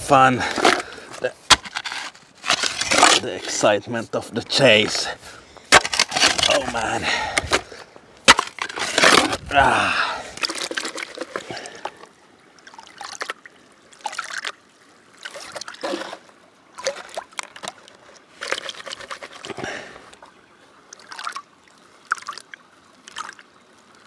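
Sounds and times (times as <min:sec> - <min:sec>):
water sloshing in gold pan: 0:05.7 - 0:09.4, 0:10.3 - 0:19.9.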